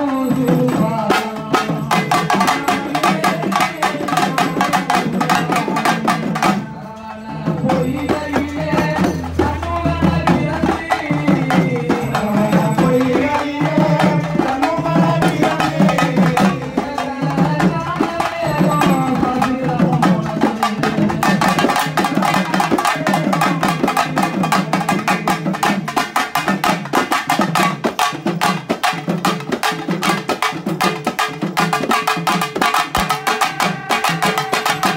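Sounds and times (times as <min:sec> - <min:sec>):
person singing into a microphone: 0:00.0 - 0:25.8, 0:32.8 - 0:34.9
fast dense drumming: 0:00.3 - 0:34.9.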